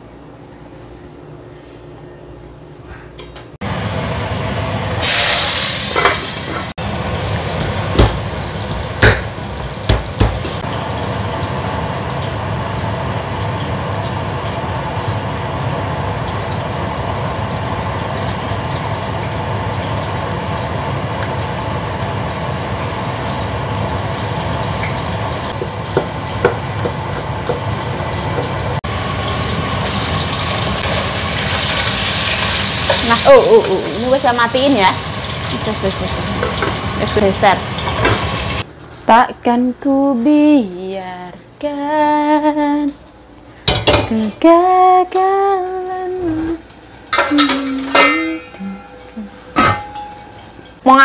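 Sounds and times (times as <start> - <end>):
range-hood extractor fan: 0.0 - 5.2, 5.9 - 51.0
sizzling in hot oil: 4.9 - 39.3, 43.3 - 51.0
sharp knocks: 9.9 - 10.6.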